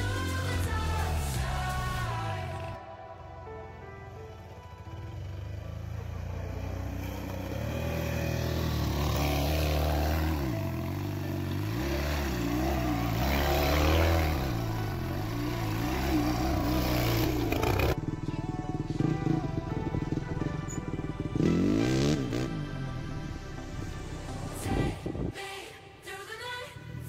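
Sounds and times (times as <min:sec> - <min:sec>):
quad bike engine revving: 0:04.9 - 0:23.5.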